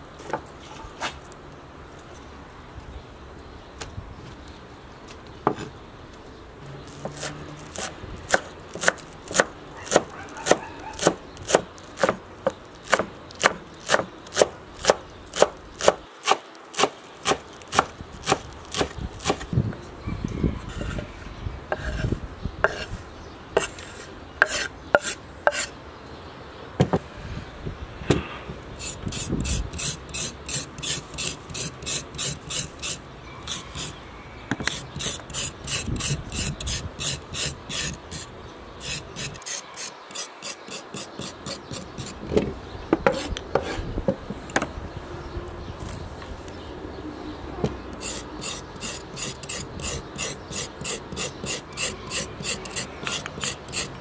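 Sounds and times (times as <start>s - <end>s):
knife chopping on wooden board: 7.0s - 12.2s.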